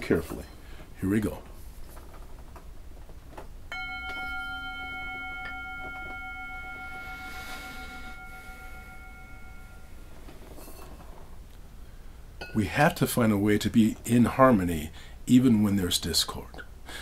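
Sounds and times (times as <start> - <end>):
singing bowl ringing: 3.7 - 11.0.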